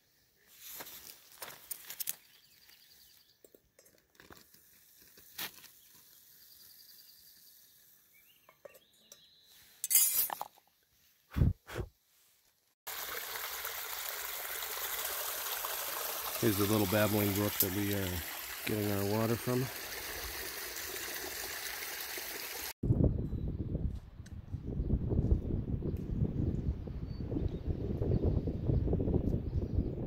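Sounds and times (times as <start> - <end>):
babbling brook rushing: 12.9 - 22.8.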